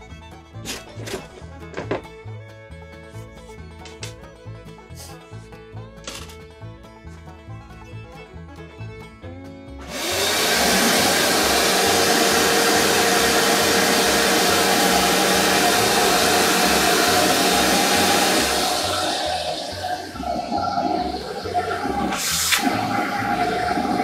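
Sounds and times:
shop vacuum motor rushing: 0:09.8 - 0:24.0.

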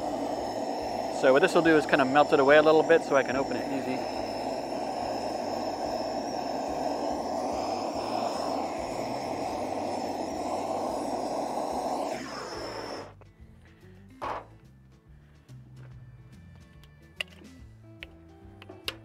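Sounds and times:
propane torch burning: 0:00.0 - 0:13.2.

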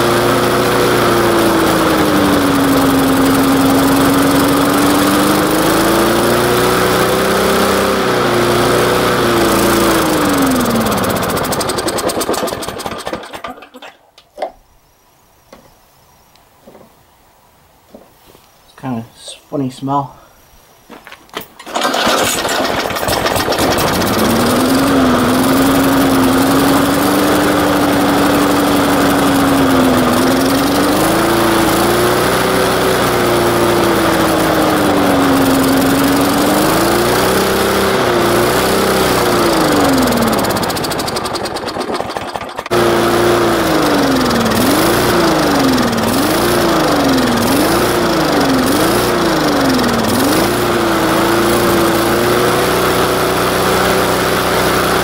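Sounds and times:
lawn mower engine running: 0:00.0 - 0:14.5, 0:21.3 - 0:55.0.

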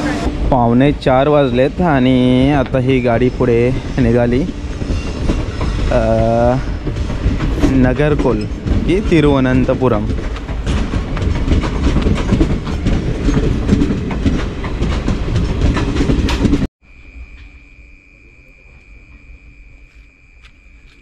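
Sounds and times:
wheels clacking over rail joints: 0:00.0 - 0:16.7
train coaches rumbling past: 0:00.0 - 0:20.0
faint high whine: 0:16.9 - 0:21.0.

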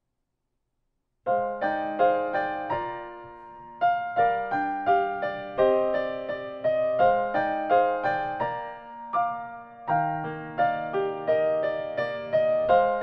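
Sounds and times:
piano playing slow chords: 0:01.3 - 0:13.0.

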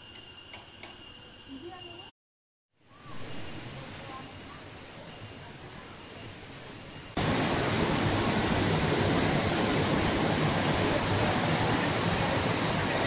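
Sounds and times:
waterfall rushing: 0:07.2 - 0:13.0.

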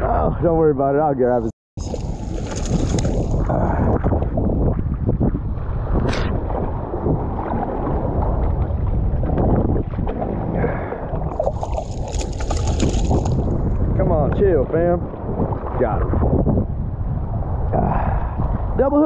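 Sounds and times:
wind buffeting microphone: 0:00.0 - 0:19.0
fish splashing at surface: 0:01.8 - 0:03.4, 0:11.4 - 0:13.5
sloshing surf: 0:01.8 - 0:14.0.

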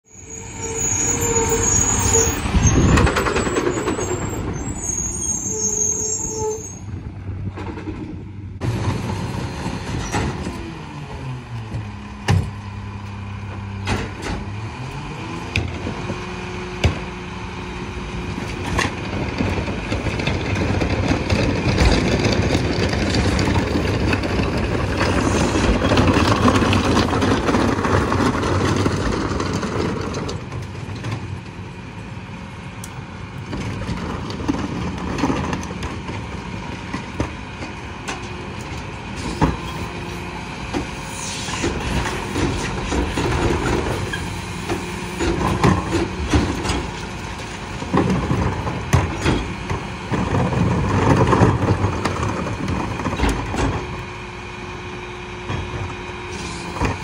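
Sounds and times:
garbage truck diesel engine: 0:00.0 - 0:57.0
brakes squealing: 0:00.1 - 0:07.0, 0:37.5 - 0:54.0.

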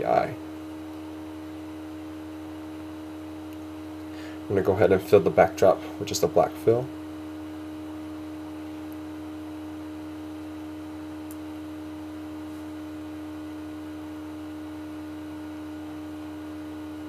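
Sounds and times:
electrical hum with pitched tone: 0:00.0 - 0:17.0.

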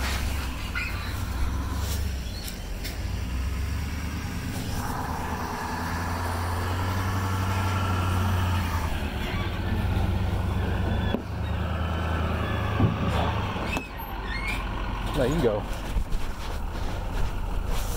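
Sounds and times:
vehicle engine running: 0:00.0 - 0:17.9
higher hum: 0:04.2 - 0:09.2.

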